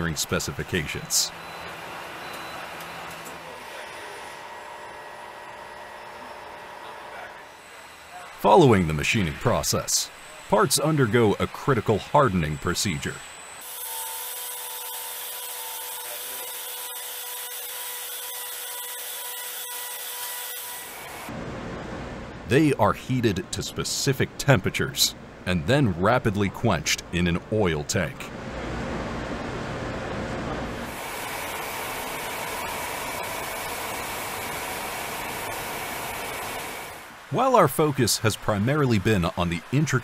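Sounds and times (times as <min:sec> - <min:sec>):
faint whining tones: 0:01.3 - 0:13.6
machinery rushing noise: 0:05.6 - 0:13.6.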